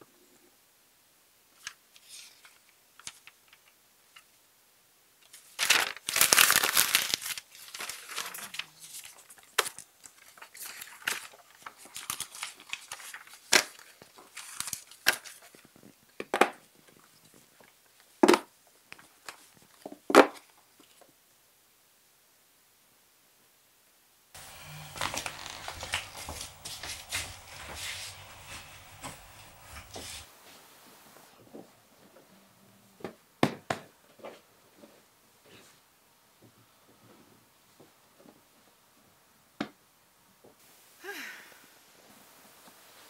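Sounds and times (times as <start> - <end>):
paper rustling and crinkling: 5.3 - 16.0, 24.4 - 30.4.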